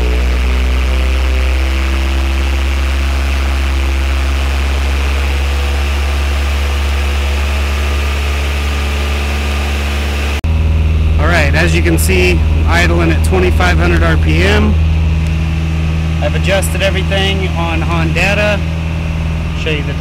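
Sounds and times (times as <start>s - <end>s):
car engine running at raised idle: 0.0s - 20.0s.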